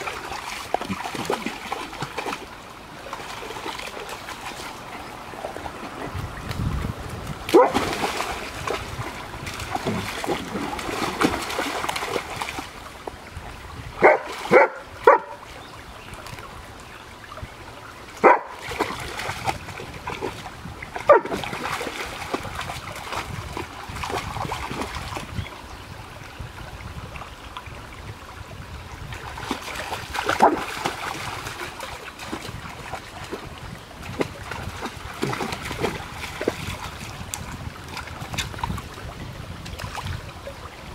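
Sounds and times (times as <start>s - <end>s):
dog splashing through water: 0.0s - 12.8s, 18.2s - 25.4s, 29.1s - 39.0s
dog barking: 7.5s - 7.8s, 14.0s - 15.4s, 18.2s - 18.6s, 21.1s - 21.3s.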